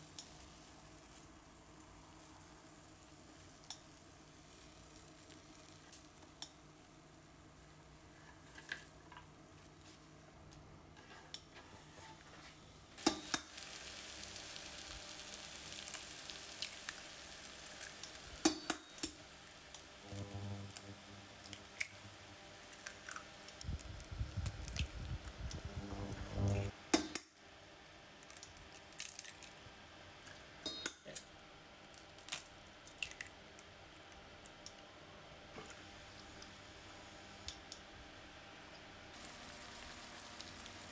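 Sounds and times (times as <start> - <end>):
clicks and taps in frying pan: 13.0 - 13.5, 18.4 - 19.2, 26.9 - 27.3
eggs cracking: 32.0 - 34.2.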